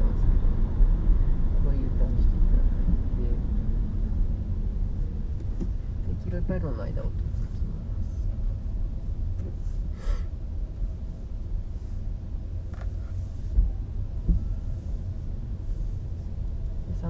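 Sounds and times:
tyre and road noise in car: 0:00.0 - 0:17.0
short breathy hiss: 0:09.7 - 0:10.3.

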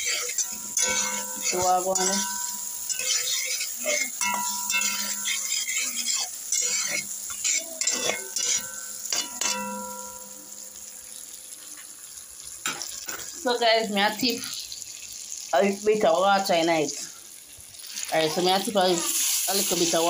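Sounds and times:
metal spatula scraping pot: 0:00.0 - 0:10.4
vegetables sizzling in butter: 0:00.0 - 0:20.0.

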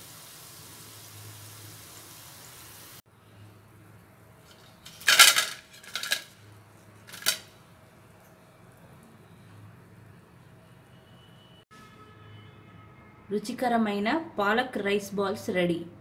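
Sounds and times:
frying oil hissing: 0:00.0 - 0:03.1
wire basket clattering on plate: 0:04.5 - 0:06.4, 0:07.1 - 0:07.5.

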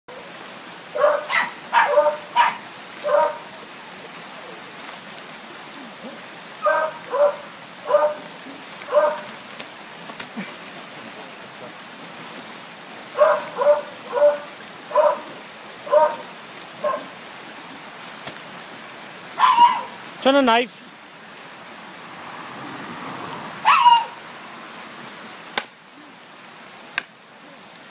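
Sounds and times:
dog barking sharply: 0:01.0 - 0:03.4, 0:06.6 - 0:08.3, 0:08.9 - 0:09.3, 0:13.2 - 0:15.3, 0:15.9 - 0:16.2, 0:16.8 - 0:17.1, 0:19.4 - 0:20.0, 0:23.6 - 0:24.2.

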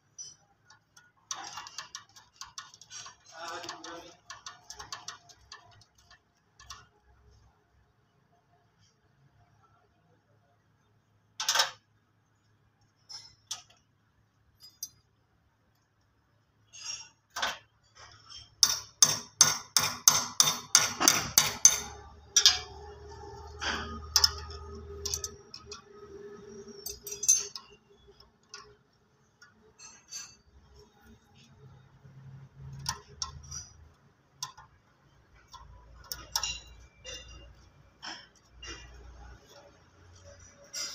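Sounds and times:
spanner clinking on metal: 0:00.1 - 0:07.0, 0:14.6 - 0:15.1, 0:16.7 - 0:30.9, 0:32.6 - 0:40.9.

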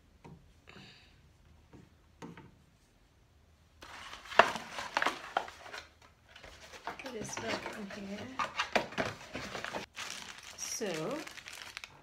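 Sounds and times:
cardboard rubbing and rustling: 0:03.8 - 0:11.8.

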